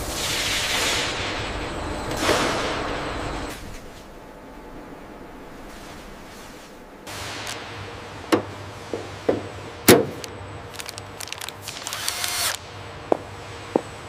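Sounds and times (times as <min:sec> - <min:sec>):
rapid rattling clicks: 0:10.7 - 0:12.6.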